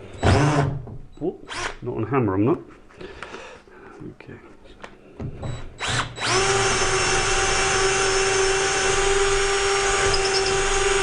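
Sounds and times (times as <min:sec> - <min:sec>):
cordless drill boring into wood: 0:00.2 - 0:00.7, 0:01.5 - 0:01.8, 0:05.8 - 0:11.0.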